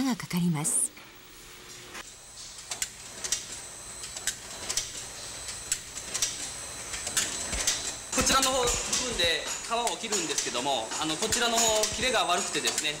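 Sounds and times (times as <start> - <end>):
machine clicks and clacks: 5.7 - 13.0.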